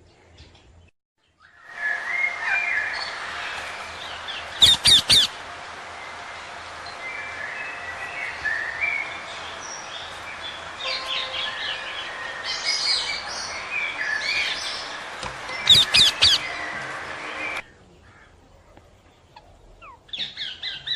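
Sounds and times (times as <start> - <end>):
parrots chirping and chattering: 2.4 - 5.4, 12.0 - 17.6, 19.3 - 20.9
loud sharp parrot calls: 4.6 - 5.4, 15.7 - 16.6.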